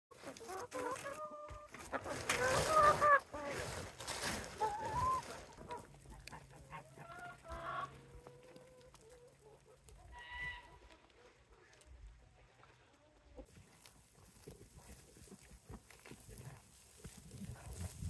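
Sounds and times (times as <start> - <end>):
hens clucking and calling: 0.1 - 11.8
plastic feed bag rustling: 0.2 - 6.0.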